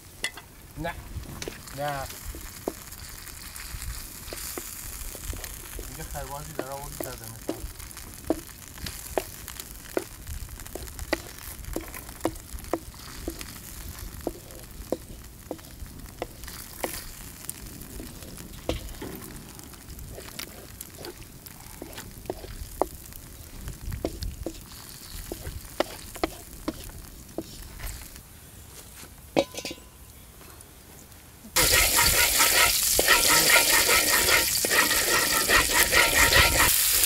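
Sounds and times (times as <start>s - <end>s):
chicken sizzling in a pan: 0.0s - 28.2s, 31.6s - 37.0s
wooden spatula tapping a pan: 2.2s - 2.8s, 5.3s - 17.0s.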